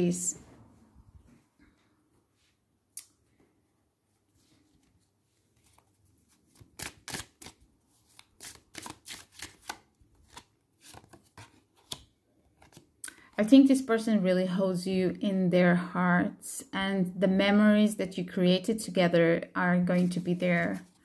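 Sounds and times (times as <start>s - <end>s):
cards being shuffled: 4.5s - 12.9s.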